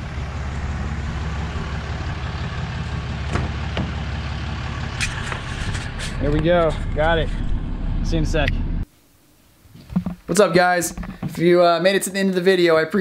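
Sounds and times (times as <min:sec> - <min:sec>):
truck engine idling: 0:00.0 - 0:08.8.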